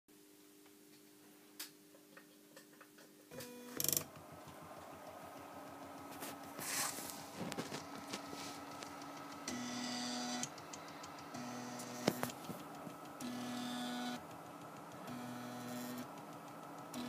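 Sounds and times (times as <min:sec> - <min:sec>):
steady hum: 0:03.3 - 0:17.0
stepper motors ticking buzz: 0:07.5 - 0:17.0.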